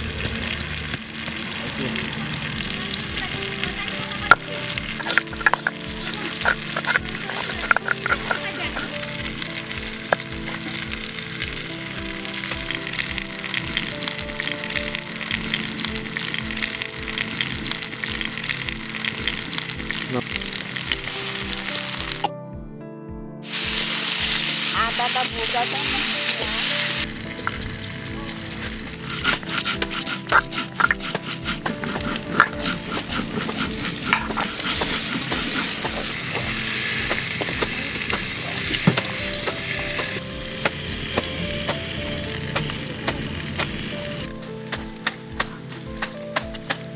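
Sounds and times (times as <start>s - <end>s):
potatoes frying in oil: 0.0s - 22.3s, 23.4s - 46.9s
spatula stirring in pan: 2.6s - 9.4s, 28.5s - 40.2s
background music with beat: 2.6s - 46.9s
stone grinding spice seeds: 4.4s - 9.0s, 23.5s - 41.4s.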